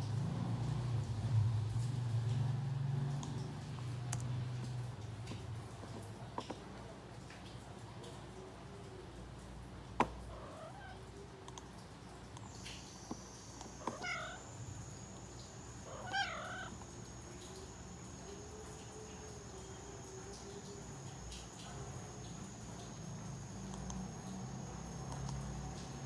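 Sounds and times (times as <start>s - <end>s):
cat meowing: 10.3s - 11.1s, 13.8s - 14.6s, 15.8s - 16.8s.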